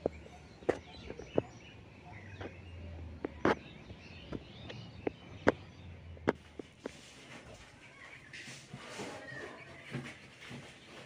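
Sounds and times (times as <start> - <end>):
sharp knocks and clicks: 0.0 - 7.0
faint bird chirps: 0.0 - 11.0.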